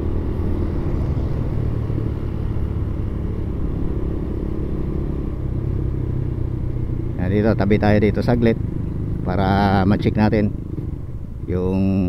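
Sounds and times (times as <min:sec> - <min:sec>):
motorcycle engine cruising: 0:00.0 - 0:12.0
road and wind rumble: 0:00.0 - 0:12.0.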